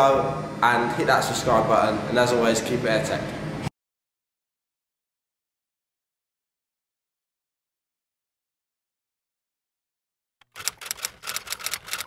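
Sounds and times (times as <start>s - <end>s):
typewriter typing clicks: 10.4s - 12.0s.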